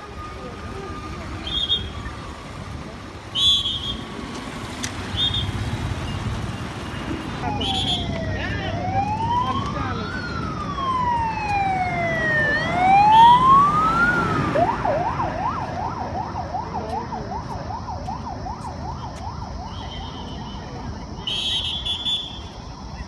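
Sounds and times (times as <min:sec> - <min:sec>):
sirens wailing and yelping: 0:00.0 - 0:03.0, 0:05.0 - 0:20.4
vehicles passing: 0:00.0 - 0:23.0.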